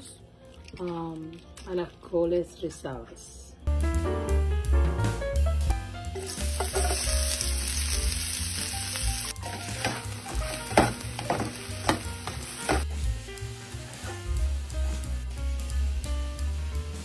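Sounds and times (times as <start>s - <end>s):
onion sizzling in oil: 6.0s - 17.0s.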